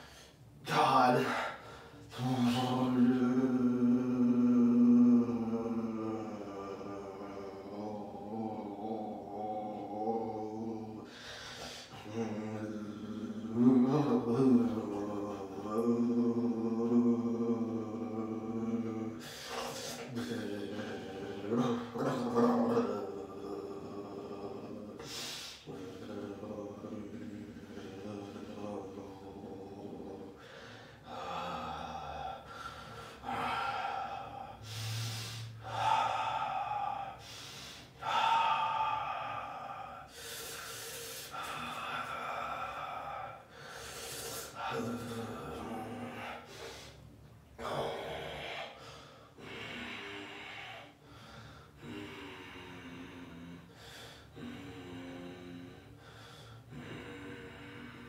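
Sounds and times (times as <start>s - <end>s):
man moaning: 0.7s - 51.0s
man gasping and breathing hard: 30.4s - 45.3s, 46.0s - 52.6s.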